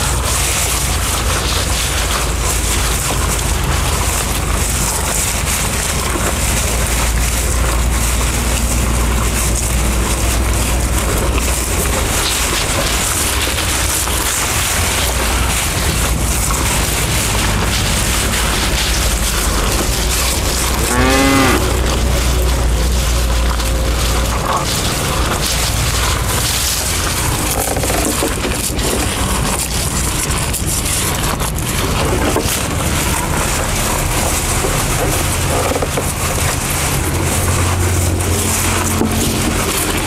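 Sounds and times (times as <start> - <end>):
bulls munching grass: 0.0 - 40.0
cow mooing: 20.7 - 22.1.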